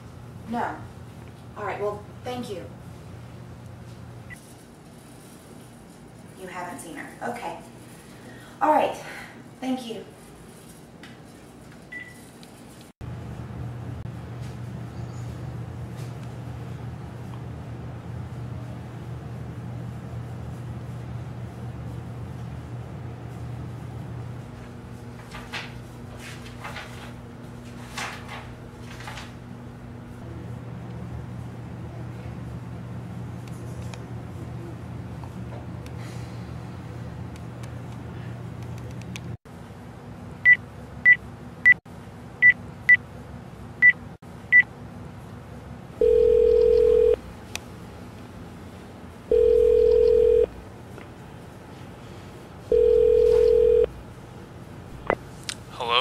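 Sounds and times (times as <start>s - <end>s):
paper pages turning: 25.2s - 29.4s
phone keypad beeping: 46.0s - 47.2s, 49.3s - 50.5s, 52.7s - 53.9s.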